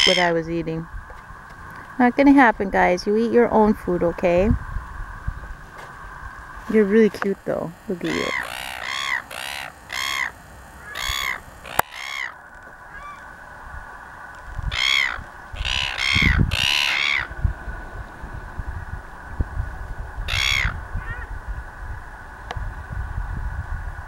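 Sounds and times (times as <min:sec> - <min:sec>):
gulls squawking: 0:00.0 - 0:00.5, 0:07.9 - 0:13.4, 0:14.6 - 0:17.4, 0:20.2 - 0:21.4.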